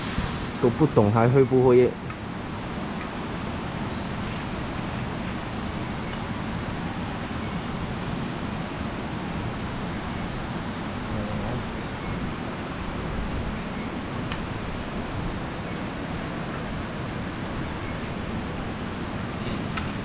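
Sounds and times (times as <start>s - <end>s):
waterfall roaring: 0.0s - 20.0s.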